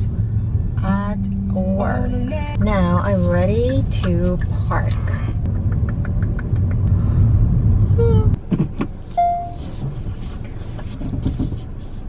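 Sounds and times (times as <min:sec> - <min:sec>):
car cabin rumble: 0:00.0 - 0:12.0
short electronic beep: 0:09.2 - 0:09.6.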